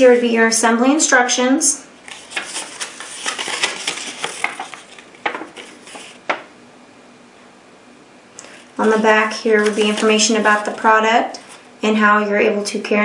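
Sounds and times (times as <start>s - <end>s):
paper crackling and rustling: 2.0s - 6.4s, 8.8s - 11.7s.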